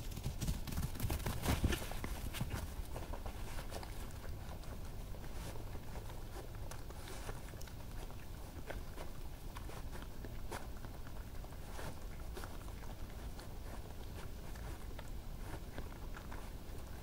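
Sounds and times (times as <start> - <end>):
light animal footfalls: 0.1 - 4.4
clicks and crunches of eating: 1.1 - 17.0.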